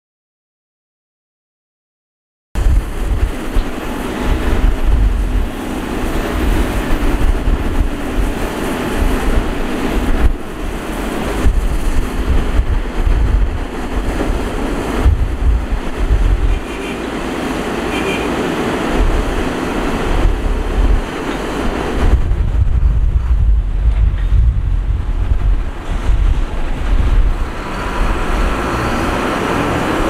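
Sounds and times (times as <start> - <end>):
excavator diesel engine rumbling: 2.6 - 30.0.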